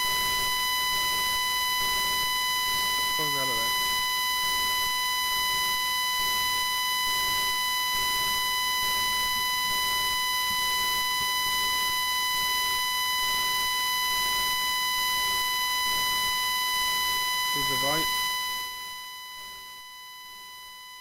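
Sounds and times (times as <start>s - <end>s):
high-pitched microphone feedback: 0.0s - 4.7s, 16.8s - 19.0s.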